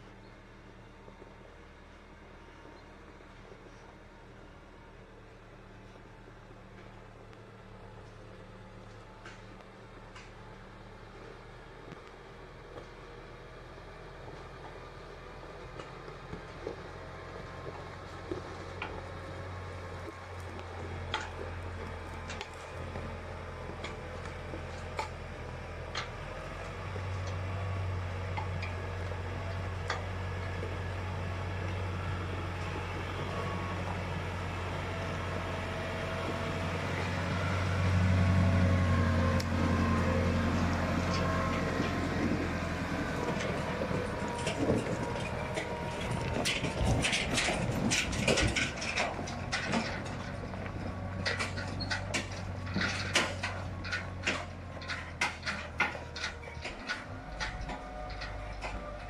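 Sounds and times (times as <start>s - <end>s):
tractor diesel engine running: 0.0s - 59.0s
sharp knocks and clattering: 15.7s - 33.2s, 40.6s - 59.0s.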